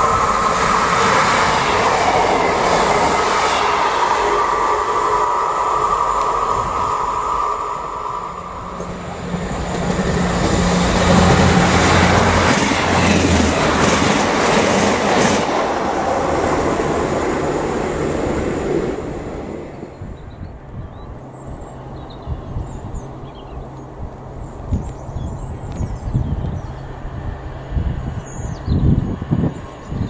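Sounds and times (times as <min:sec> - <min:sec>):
train wheels on rails: 0:00.0 - 0:20.2
train engine drone: 0:00.0 - 0:30.0.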